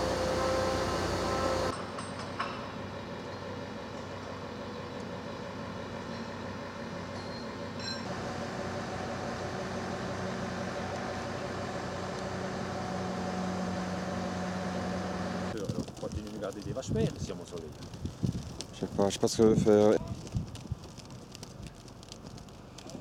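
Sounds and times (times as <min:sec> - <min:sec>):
crane diesel engine running: 0:00.0 - 0:15.6.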